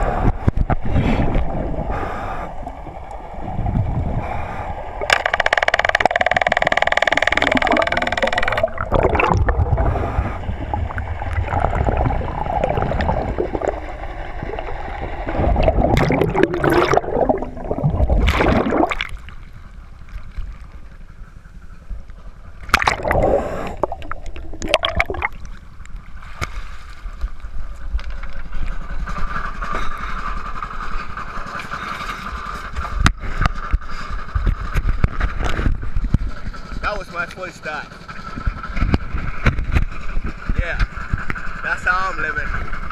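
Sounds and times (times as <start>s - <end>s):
water gurgling and rushing: 0.0s - 21.2s, 22.4s - 27.6s
steady hum: 0.0s - 37.1s
lapping water: 7.4s - 13.9s, 15.3s - 19.2s
loud splashes: 15.3s - 19.3s, 22.7s - 25.5s.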